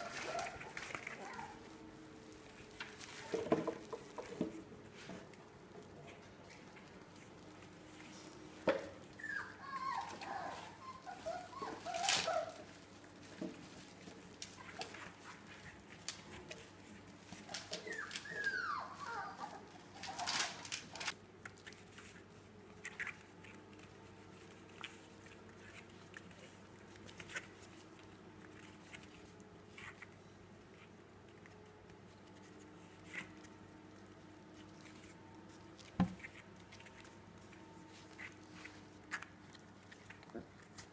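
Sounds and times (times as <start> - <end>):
puppy whine: 0.0 - 1.9, 7.6 - 16.7, 17.3 - 21.2
paws and claws clicking: 0.0 - 40.9
puppies scuffling: 0.0 - 40.9.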